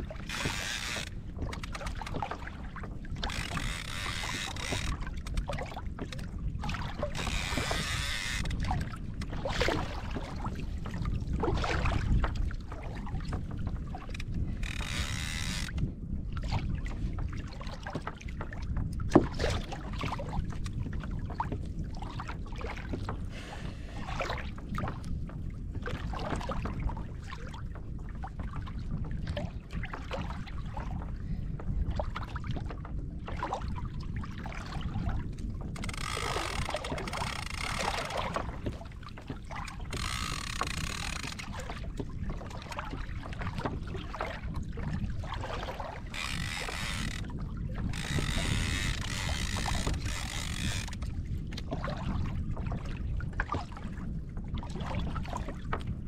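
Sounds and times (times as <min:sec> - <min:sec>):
water splashing: 0:00.0 - 0:05.9, 0:34.5 - 0:44.3, 0:45.1 - 0:51.0
water lapping against kayak hull: 0:00.0 - 0:56.0
wind rumble on microphone: 0:00.0 - 0:56.0
small knocks and clicks: 0:03.2 - 0:06.2, 0:07.0 - 0:09.3, 0:14.0 - 0:15.9, 0:35.7 - 0:41.6, 0:48.0 - 0:51.0.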